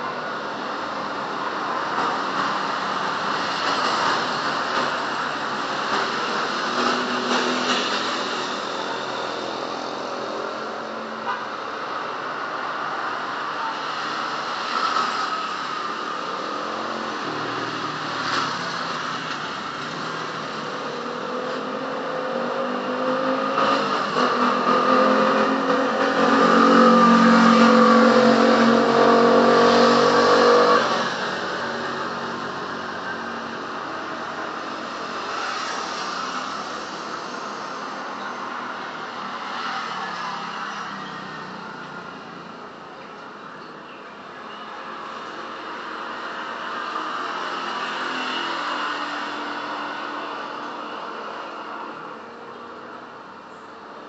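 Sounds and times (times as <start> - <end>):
vehicle engines passing: 0.0 - 54.0.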